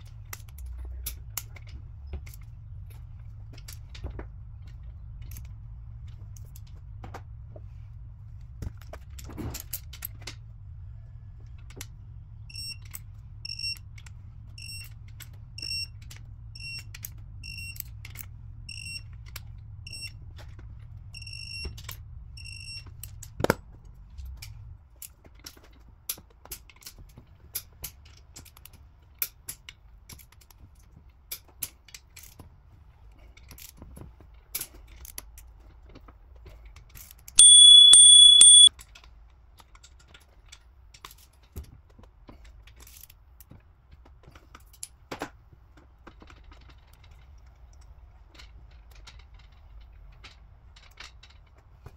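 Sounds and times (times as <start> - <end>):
long high beep: 37.4 - 38.7
torque wrench beeping: 37.4 - 38.7.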